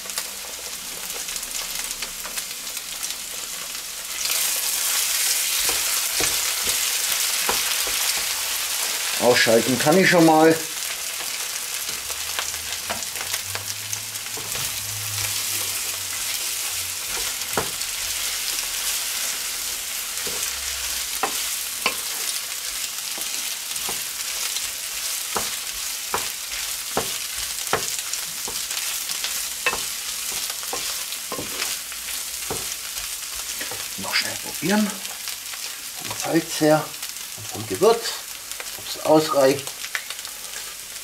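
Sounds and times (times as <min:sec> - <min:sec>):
food sizzling in a frying pan: 0:00.0 - 0:41.0
wooden spatula scraping pan: 0:14.3 - 0:34.2.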